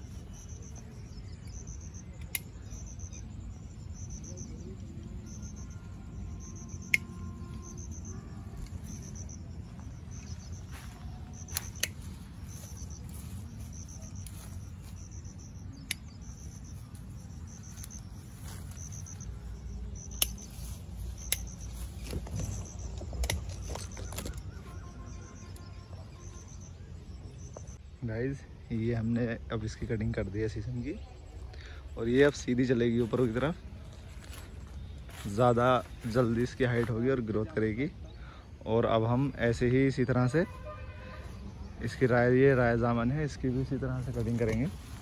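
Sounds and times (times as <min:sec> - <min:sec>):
crickets chirping: 0:00.0 - 0:45.0
leaves rustling: 0:07.4 - 0:25.0, 0:42.8 - 0:45.0
pruning shears snipping: 0:11.4 - 0:12.3, 0:20.0 - 0:24.5.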